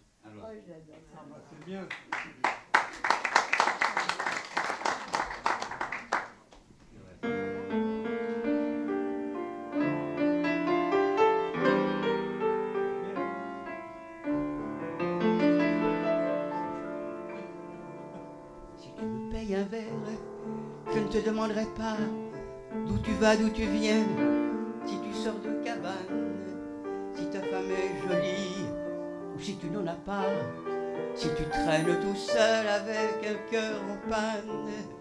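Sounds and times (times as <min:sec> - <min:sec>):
audience applauding: 0:01.6 - 0:06.6
piano playing chords: 0:07.2 - 0:35.0.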